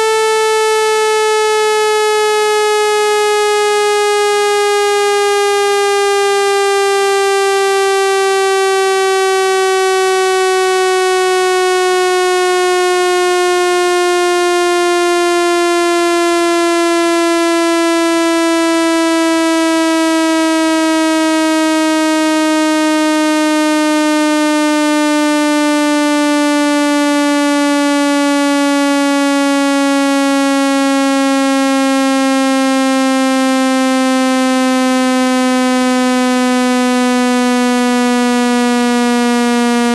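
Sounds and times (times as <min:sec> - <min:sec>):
electronic tone sliding downward: 0:00.0 - 0:39.9.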